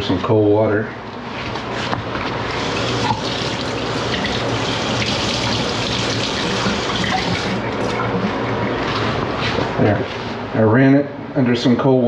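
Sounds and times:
tap water running: 2.2 - 9.1.

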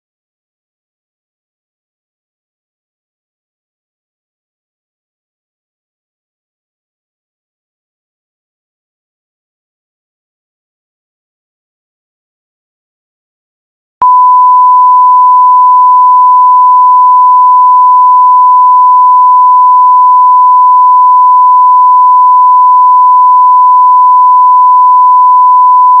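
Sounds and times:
steady test tone: 14.0 - 26.0.

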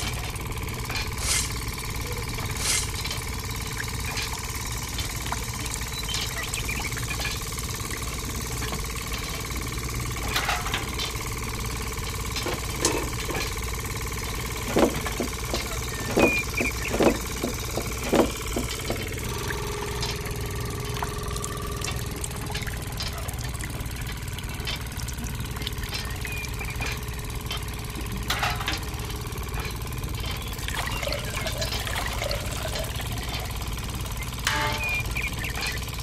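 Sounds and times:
sharp clicks and knocks: 0.0 - 11.4, 12.0 - 36.0
motor humming: 0.0 - 36.0
thin whine: 30.4 - 36.0.

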